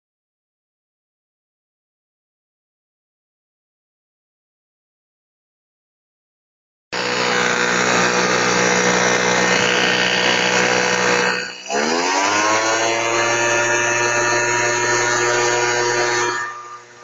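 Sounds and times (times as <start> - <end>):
electric blower motor: 7.0 - 17.0
rising motor whine: 7.0 - 17.0.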